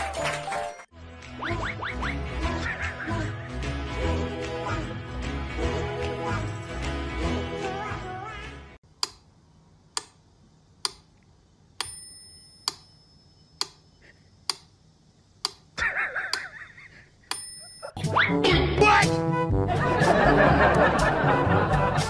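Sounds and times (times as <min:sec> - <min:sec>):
regular ticking clicks: 0:08.9 - 0:09.3, 0:09.9 - 0:12.0, 0:12.6 - 0:14.8, 0:15.4 - 0:16.5
high ringing tone: 0:11.8 - 0:14.0.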